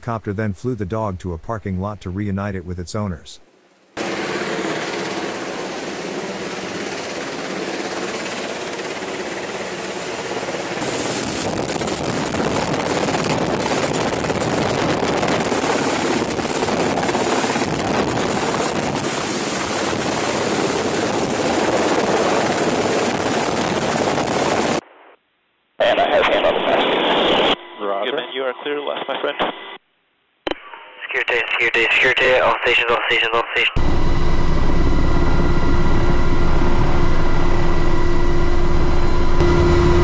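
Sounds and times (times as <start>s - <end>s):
helicopter rotor rushing: 4.0s - 24.8s, 33.8s - 40.0s.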